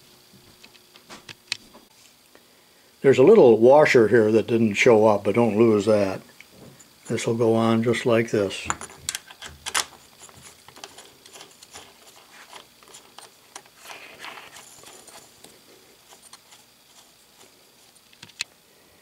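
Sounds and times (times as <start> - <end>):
plastic dial clicking and scraping: 9.1 - 15.5.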